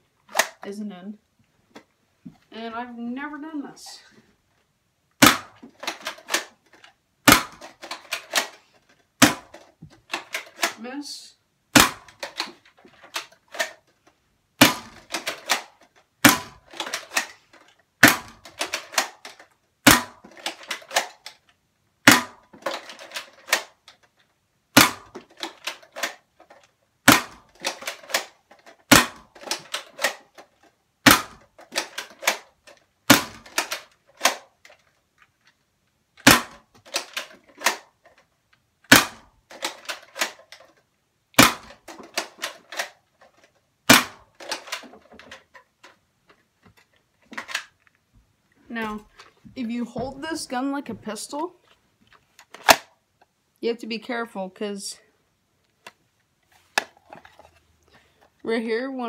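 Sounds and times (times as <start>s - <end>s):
plastic slide clicks and rattles: 5.2s - 10.8s, 11.8s - 35.6s, 36.2s - 48.0s, 52.1s - 53.0s, 56.6s - 57.7s.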